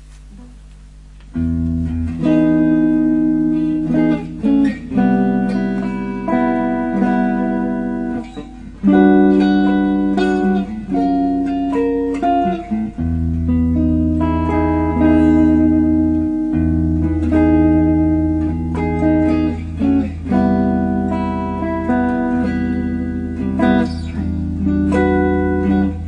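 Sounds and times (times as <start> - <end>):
instrumental background music: 1.4 - 26.0.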